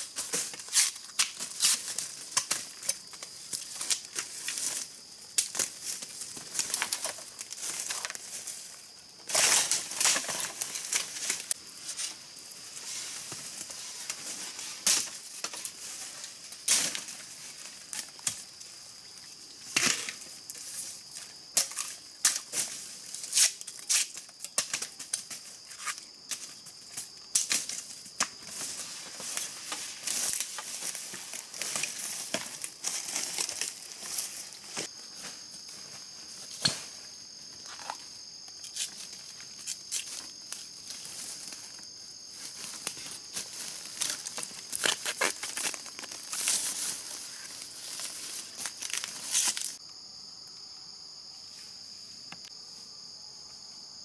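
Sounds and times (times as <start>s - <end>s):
rustling and snapping vegetation: 0.1s - 8.5s, 21.5s - 36.9s, 42.4s - 49.8s.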